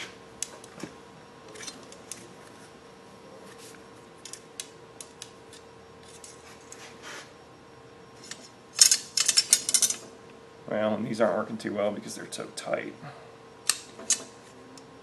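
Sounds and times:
metal calipers clicking and scraping: 8.2s - 10.1s, 13.7s - 14.3s.

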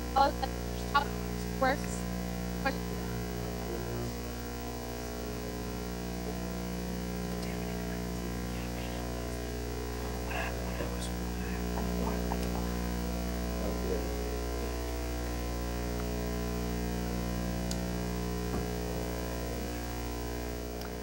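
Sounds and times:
electrical buzz: 0.0s - 21.0s
faint garbled talk: 0.2s - 14.8s.

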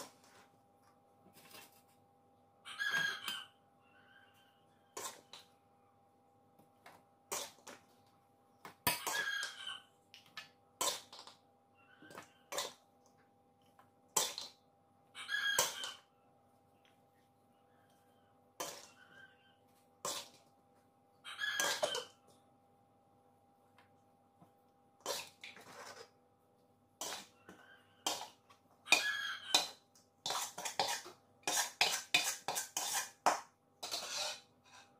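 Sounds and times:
metal spoon scraping a steel tray: 4.9s - 5.4s, 8.9s - 9.6s, 15.3s - 16.0s, 18.6s - 19.3s, 20.0s - 20.4s, 21.4s - 22.1s, 27.0s - 34.9s.

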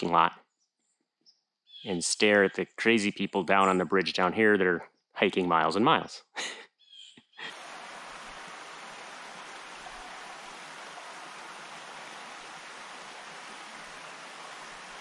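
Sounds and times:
creek rushing over rocks: 7.5s - 15.0s.

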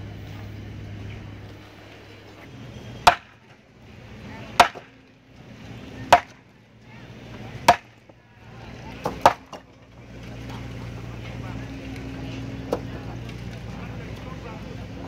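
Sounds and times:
hammer blows: 2.4s - 3.5s.

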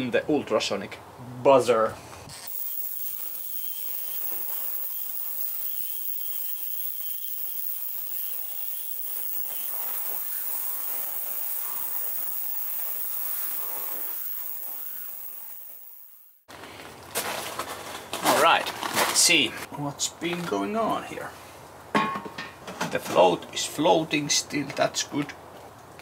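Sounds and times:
ultrasonic cleaner buzzing hiss: 2.4s - 16.3s.

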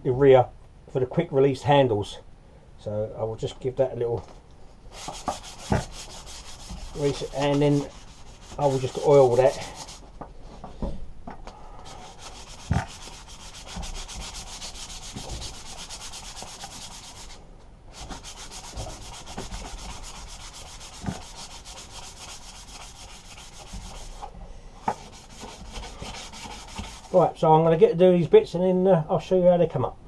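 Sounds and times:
sandpaper rubbing metal rod: 4.9s - 10.1s, 11.9s - 24.3s, 24.9s - 27.3s.

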